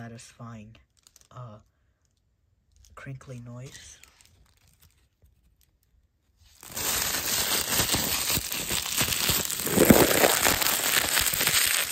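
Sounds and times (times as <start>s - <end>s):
plastic wrap crinkling: 0.9s - 1.3s, 4.0s - 5.8s, 6.5s - 11.9s.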